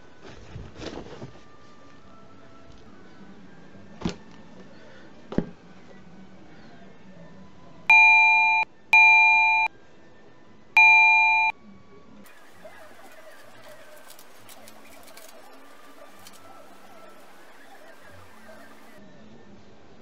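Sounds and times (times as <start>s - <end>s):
loud electronic beeps: 7.9s - 9.7s, 10.8s - 11.5s.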